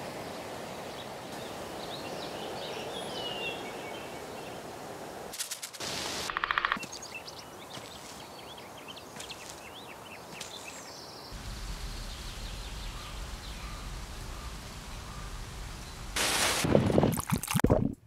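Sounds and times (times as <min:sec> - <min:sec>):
birds chirping: 0:00.3 - 0:04.7, 0:06.3 - 0:16.2
low rumble: 0:11.4 - 0:16.2.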